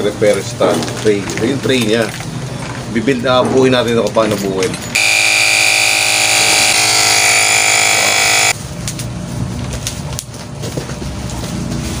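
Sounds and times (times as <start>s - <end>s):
vehicle horn: 5.0s - 8.5s.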